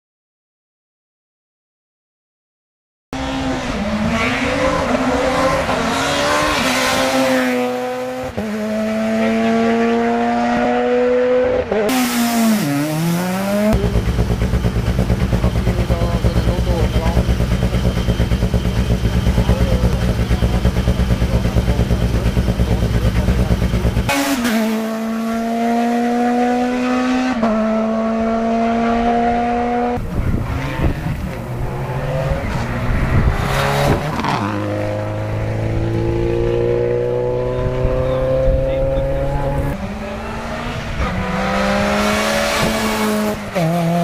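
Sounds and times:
rally cars accelerating hard: 3.2 - 44.0
rally car engine idling: 13.6 - 24.1.

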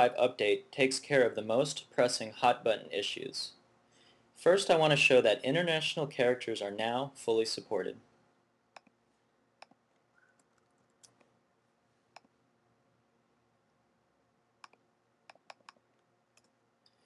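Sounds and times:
computer mouse and keyboard clicks: 14.6 - 16.6.

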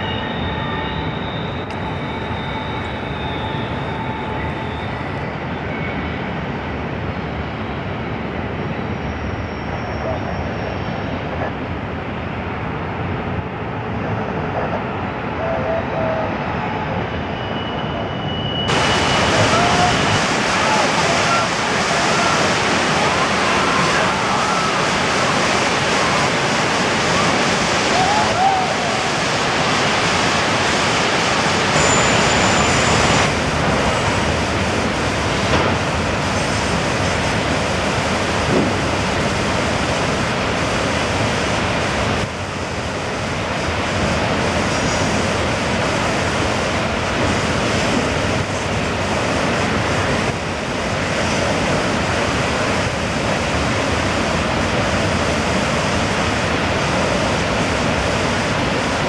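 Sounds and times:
whitewater rapids rushing: 18.7 - 42.2.

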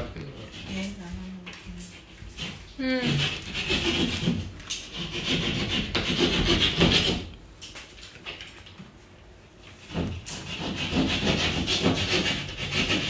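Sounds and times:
hand tool scraping wood: 1.8 - 7.3, 9.9 - 13.0.

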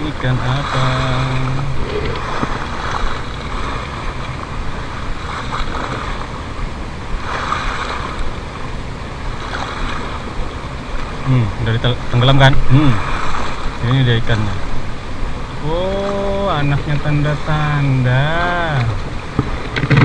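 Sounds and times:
wind on microphone: 0.0 - 15.6
waves splashing against seawall: 0.0 - 20.0.

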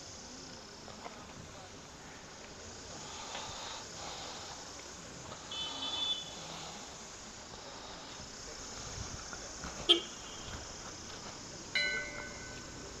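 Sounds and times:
background hiss: 0.0 - 13.0
distant voices: 0.0 - 13.0
short high-pitched tone: 11.8 - 12.8.

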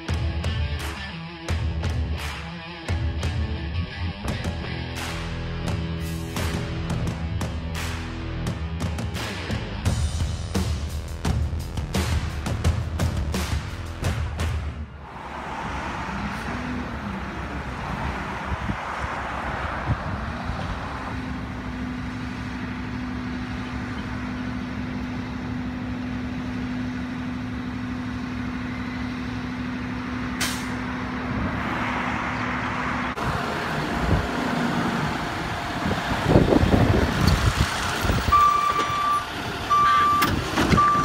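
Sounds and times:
diesel truck engine running: 4.3 - 41.0
truck driving past: 14.9 - 41.0.

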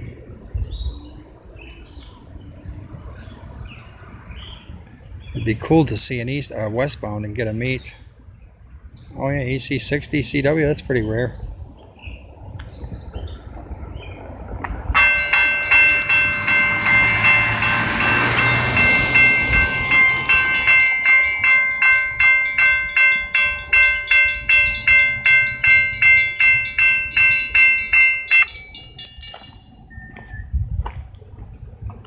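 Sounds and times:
railroad crossing bell ringing: 14.9 - 30.2.

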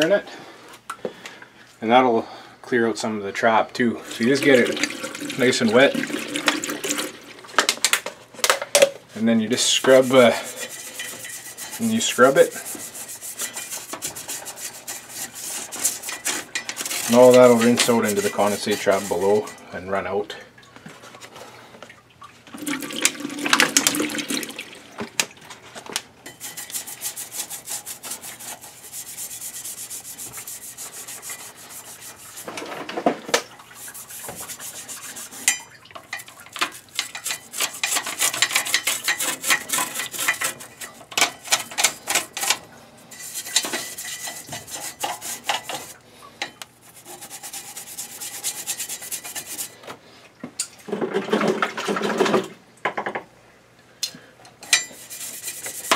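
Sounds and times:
brush scrubbing metal: 4.0 - 6.8, 9.4 - 19.6, 26.3 - 33.0, 33.6 - 46.0, 46.8 - 49.8, 54.7 - 55.9.

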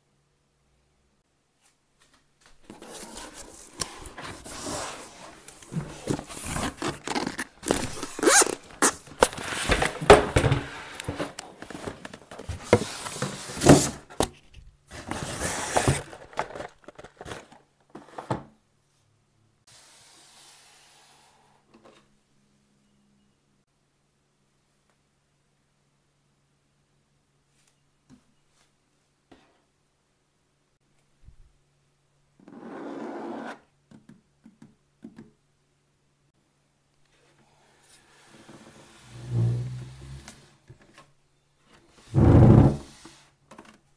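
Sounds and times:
cardboard and foam rustling: 2.6 - 18.5.

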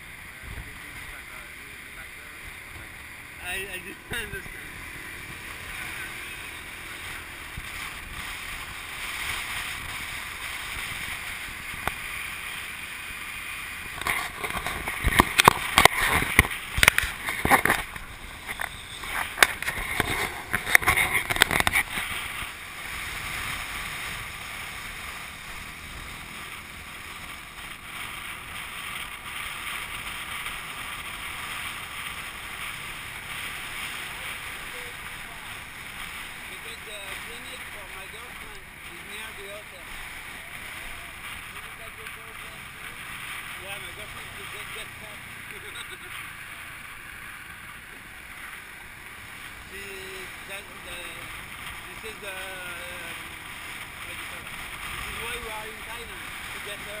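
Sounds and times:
wind and road noise: 0.0 - 57.0.

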